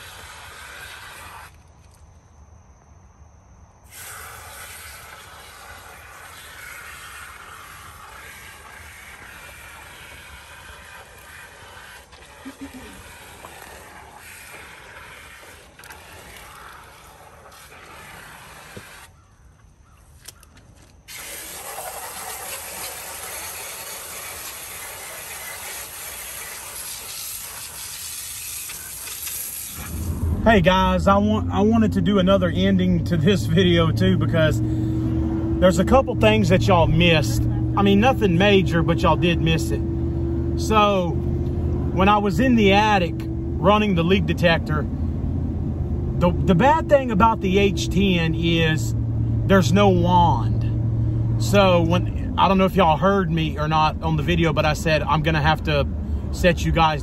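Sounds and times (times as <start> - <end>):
hose spray hissing: 0.0 - 1.6, 3.9 - 19.1, 21.1 - 30.8.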